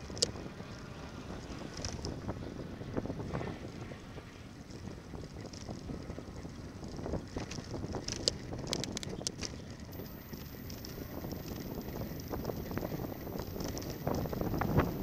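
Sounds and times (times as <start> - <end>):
bicycle tyres rumbling on road: 4.6 - 9.9
wind buffeting microphone: 10.5 - 15.0.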